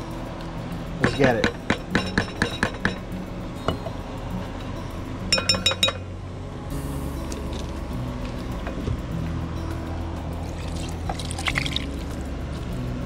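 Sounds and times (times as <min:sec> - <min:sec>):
spoons clinking against a pot: 0:01.0 - 0:03.9, 0:05.3 - 0:06.1.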